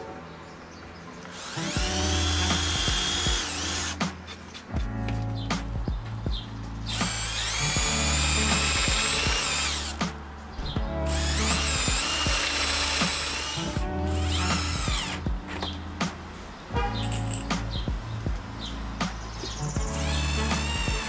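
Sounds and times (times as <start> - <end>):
power drill boring wood: 1.3 - 4.0, 7.0 - 10.0, 11.1 - 15.2, 20.0 - 21.0.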